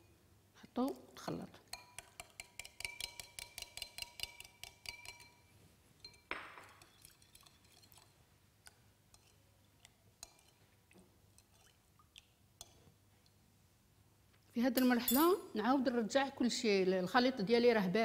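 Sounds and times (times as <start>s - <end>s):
utensil clinking against ceramic bowl: 1.7s - 8.1s, 9.1s - 9.4s, 10.2s - 10.7s, 14.8s - 15.4s.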